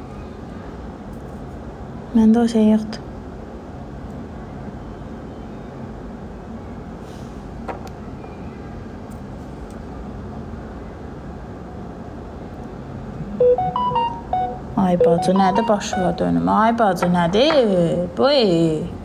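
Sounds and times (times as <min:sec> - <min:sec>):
low background rumble and hum: 0:05.9 - 0:19.0.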